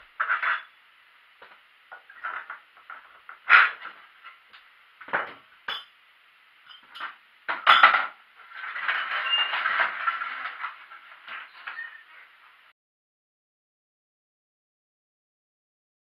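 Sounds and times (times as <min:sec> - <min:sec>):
metal objects clinking: 0:00.2 - 0:00.8, 0:06.6 - 0:12.0.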